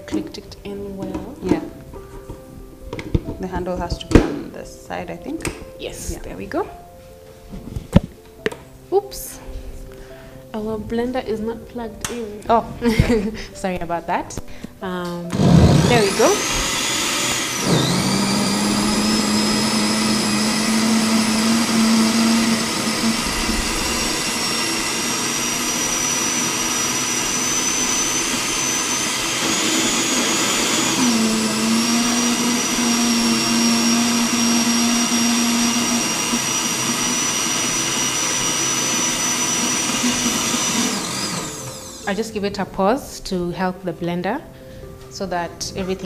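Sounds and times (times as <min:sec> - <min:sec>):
blender motor whining: 0:15.3 - 0:42.2.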